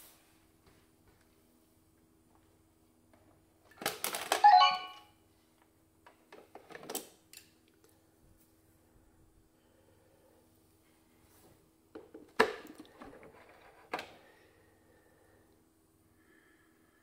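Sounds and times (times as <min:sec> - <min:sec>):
short ringing chime tone: 0:04.4 - 0:05.1
faint steady hum: 0:07.3 - 0:17.0.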